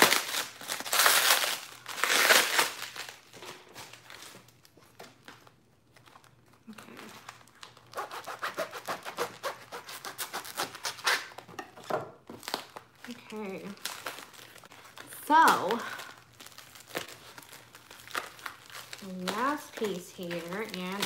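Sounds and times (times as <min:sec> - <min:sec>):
blade cutting plastic wrap: 0:00.0 - 0:03.3, 0:07.2 - 0:11.5, 0:12.4 - 0:21.0
bubble wrap crinkling: 0:00.0 - 0:11.5, 0:12.2 - 0:21.0.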